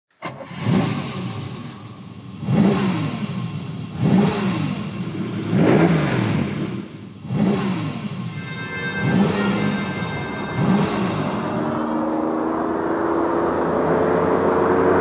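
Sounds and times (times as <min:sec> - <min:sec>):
car engine revving: 0:00.2 - 0:15.0.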